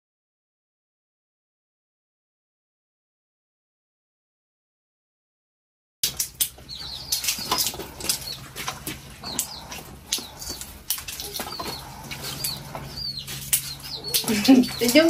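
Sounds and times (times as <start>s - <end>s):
low steady hum: 6.0s - 15.0s.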